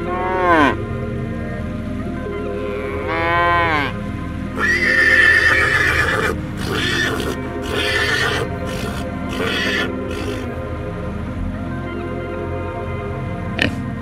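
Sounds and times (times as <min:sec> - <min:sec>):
soft background music: 0:00.0 - 0:14.0
animal calls: 0:04.6 - 0:10.6.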